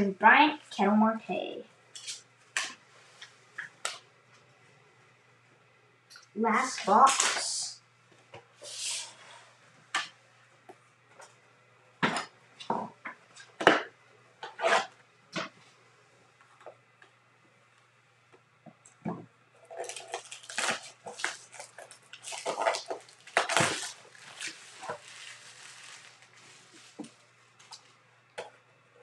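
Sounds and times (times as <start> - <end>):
cardboard crinkling and tearing: 19.7 - 27.2.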